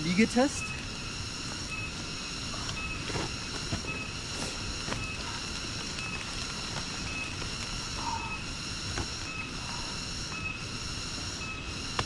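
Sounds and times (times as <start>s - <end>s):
insect chorus droning: 0.0s - 12.0s.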